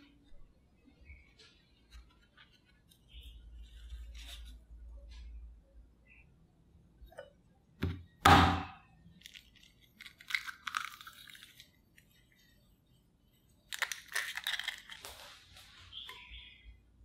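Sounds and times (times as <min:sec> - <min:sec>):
eggshell cracking: 0:09.1 - 0:12.2, 0:13.6 - 0:15.2
eggshell crackling: 0:09.1 - 0:12.6, 0:13.5 - 0:16.0.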